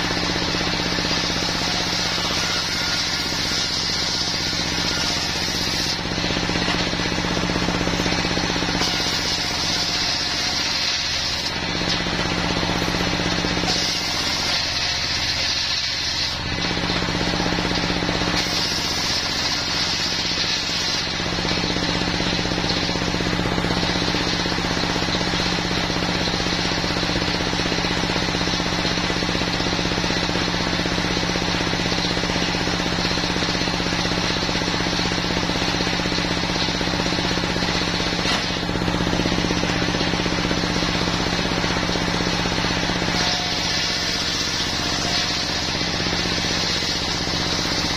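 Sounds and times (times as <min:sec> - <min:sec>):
saw blade cutting wood with rasp: 0:00.0 - 0:07.2, 0:07.8 - 0:22.8, 0:38.0 - 0:38.6, 0:42.7 - 0:47.9.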